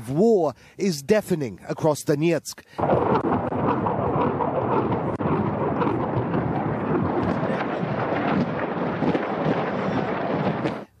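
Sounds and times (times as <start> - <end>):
crackling reports: 2.7 - 11.0
artillery shelling rumble: 2.8 - 11.0.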